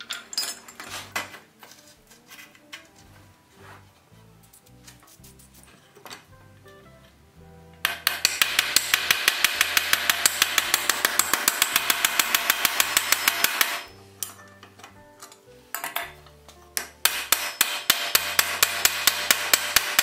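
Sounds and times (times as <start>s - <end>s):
hammer tapping on metal: 7.8s - 16.2s, 16.8s - 20.0s.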